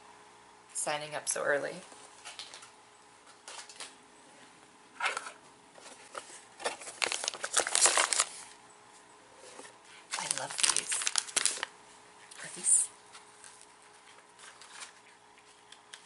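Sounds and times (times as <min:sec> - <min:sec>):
wrappers and paper crinkling: 0:05.8 - 0:08.6, 0:09.6 - 0:11.7, 0:12.6 - 0:16.0.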